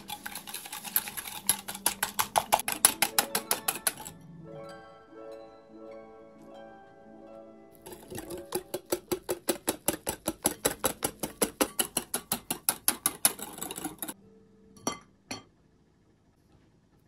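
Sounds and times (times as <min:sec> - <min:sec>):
whisk clicking against glass bowl: 0:00.0 - 0:04.1, 0:07.8 - 0:14.2.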